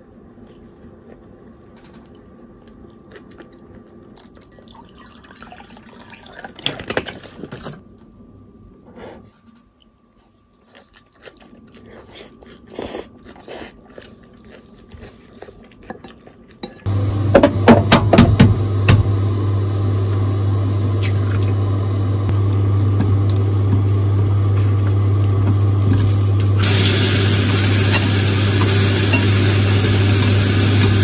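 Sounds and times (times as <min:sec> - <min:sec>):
steady low hum: 0:07.7 - 0:31.0
mushrooms sizzling in a frying pan: 0:22.3 - 0:31.0.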